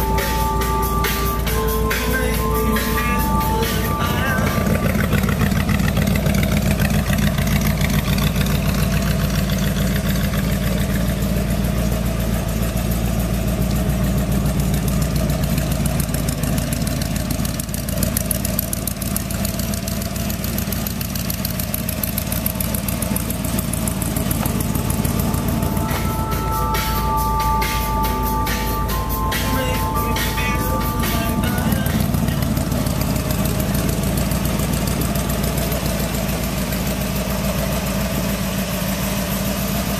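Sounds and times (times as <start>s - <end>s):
pickup engine idling: 0.0s - 39.9s.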